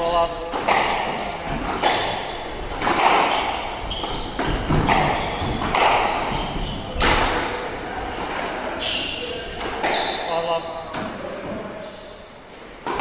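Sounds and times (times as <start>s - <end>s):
squash ball hits: 0.4s - 7.6s, 9.6s - 10.2s.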